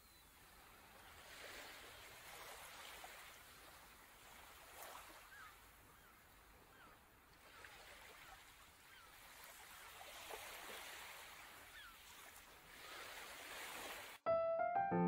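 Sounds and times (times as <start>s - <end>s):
piano music: 14.3s - 15.0s.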